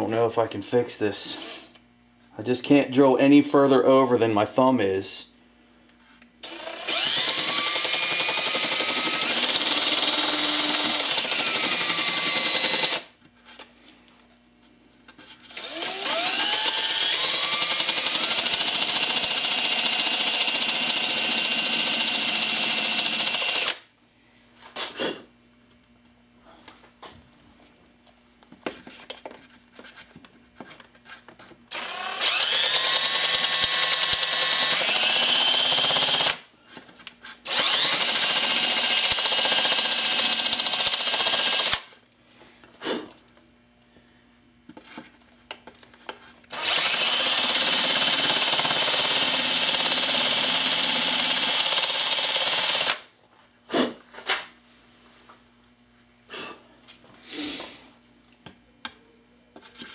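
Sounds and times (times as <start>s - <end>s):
cordless drill whining: 1.3s - 1.6s, 6.4s - 13.1s, 15.5s - 23.8s, 31.7s - 36.4s, 37.4s - 41.9s, 46.5s - 53.0s.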